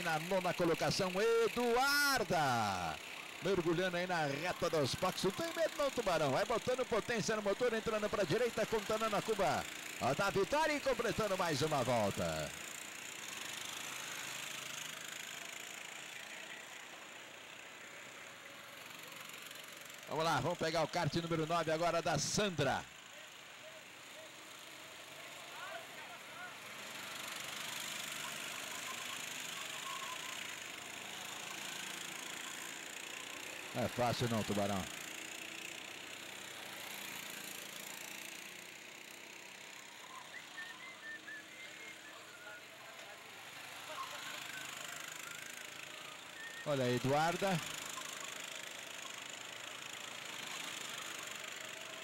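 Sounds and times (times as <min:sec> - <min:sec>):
go-kart engines droning: 0:00.0 - 0:52.0
faint high chirps: 0:28.2 - 0:31.6.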